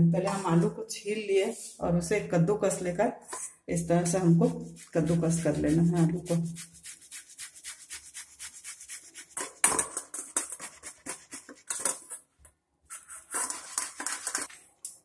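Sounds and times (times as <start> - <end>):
potato grated on metal grater: 4.0 - 12.1, 13.0 - 14.5.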